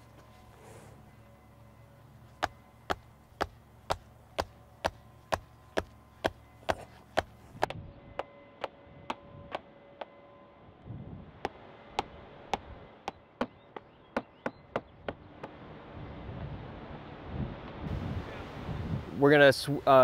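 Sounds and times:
mallet hammering stakes: 2.4 - 7.8.

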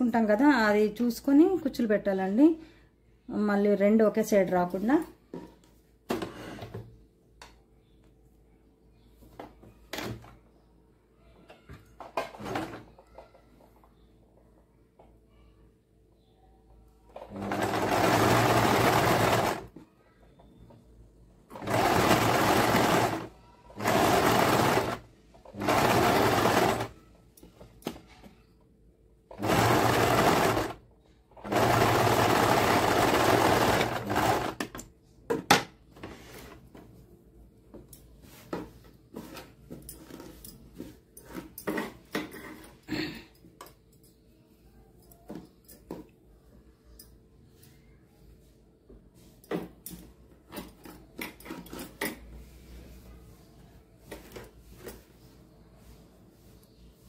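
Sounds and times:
sewing machine stitching: 12.3 - 12.9, 17.1 - 19.8, 21.5 - 27.0, 29.3 - 30.8, 31.4 - 34.8.

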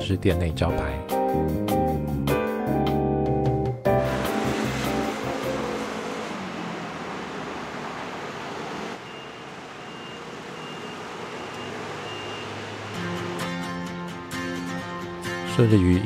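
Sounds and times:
background music with guitar: 0.0 - 6.0, 12.9 - 16.0
street traffic noise: 3.9 - 15.4.

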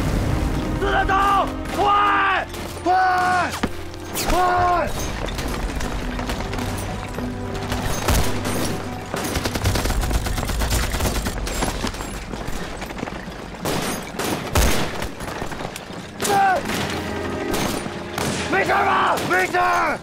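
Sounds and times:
rapid gunfire volleys: 8.1 - 11.8, 13.6 - 15.2.

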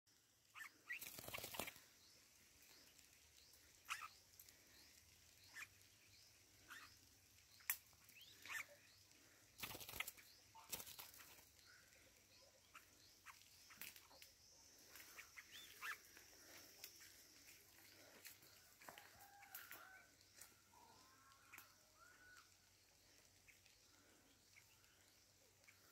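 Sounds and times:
birds chirping: 0.2 - 25.9
wing flapping: 0.8 - 1.9, 9.2 - 11.5.

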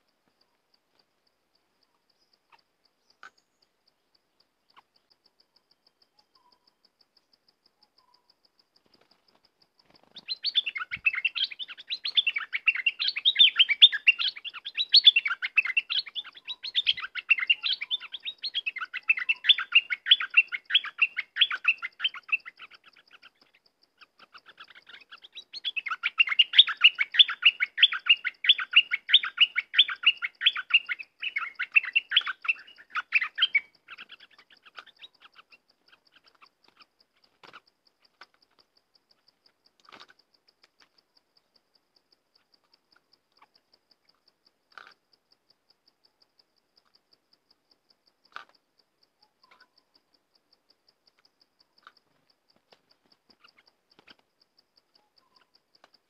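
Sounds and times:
bird singing bubbly chirps: 2.1 - 38.2, 49.2 - 56.0.

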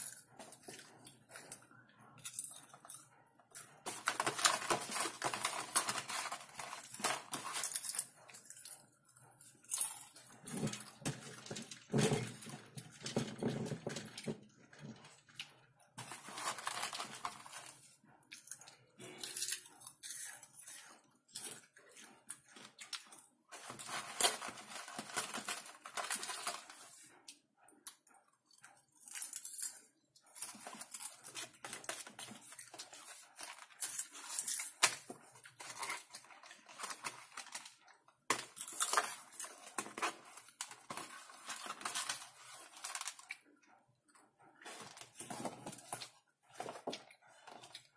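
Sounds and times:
popcorn being chewed: 0.0 - 47.9
hand rummaging through popcorn: 3.5 - 8.1, 16.0 - 18.0, 23.5 - 27.1, 30.3 - 43.2.

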